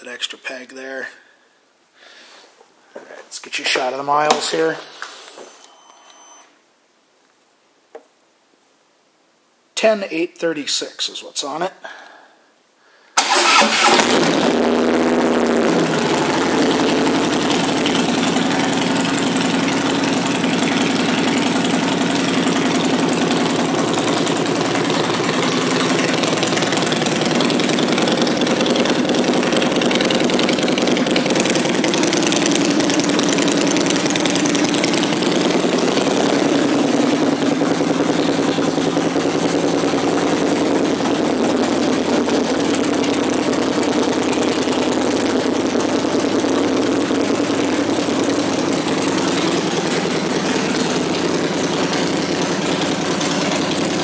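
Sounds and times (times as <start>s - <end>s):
motorcycle engine idling: 14.1s - 54.0s.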